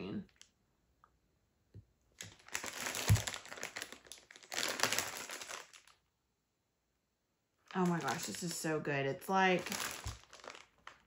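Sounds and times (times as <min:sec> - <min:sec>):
plastic wrapping crinkling: 0:02.2 - 0:06.0, 0:07.6 - 0:11.0.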